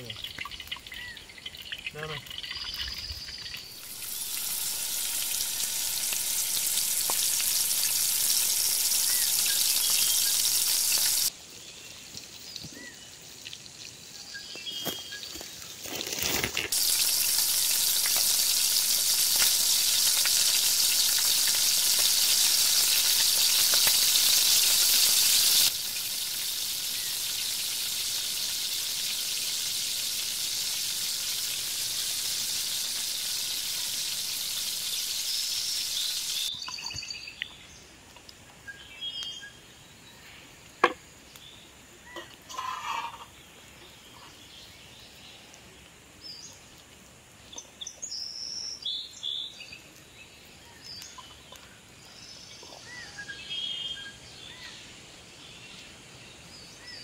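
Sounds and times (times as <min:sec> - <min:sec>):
food sizzling in a pan: 0:03.3 - 0:37.1, 0:41.3 - 0:43.9.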